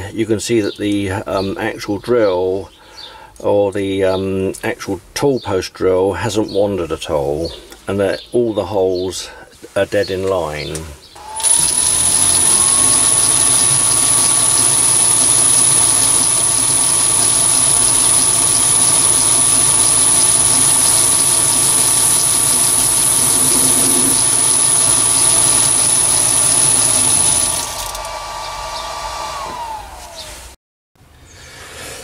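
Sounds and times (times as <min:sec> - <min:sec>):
motor hum: 0:11.2 - 0:30.5
lathe high whine: 0:11.2 - 0:30.6.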